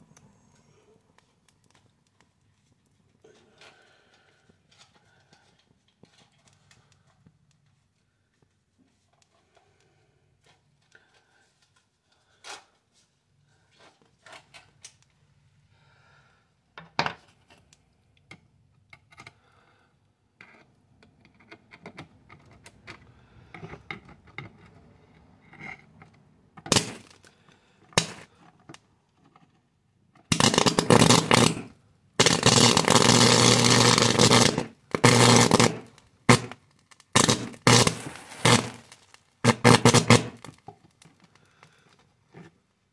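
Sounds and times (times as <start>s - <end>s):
high-voltage arcing crackle: 26.7s - 27.2s, 28.0s - 28.2s, 30.3s - 40.6s.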